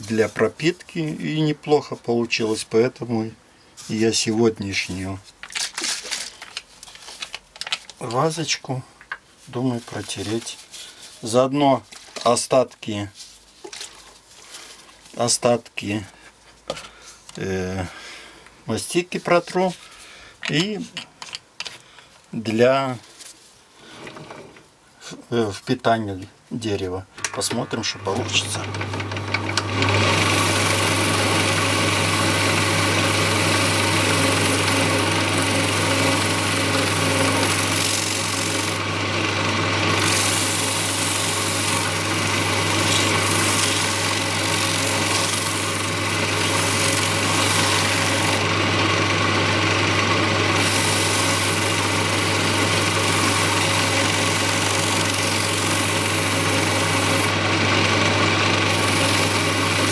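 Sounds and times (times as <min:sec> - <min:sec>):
electric lathe humming: 0:27.2 - 0:59.9
paper rubbing on spinning wood: 0:30.1 - 0:38.9, 0:39.9 - 0:48.6, 0:50.5 - 0:57.4, 0:58.6 - 0:59.9.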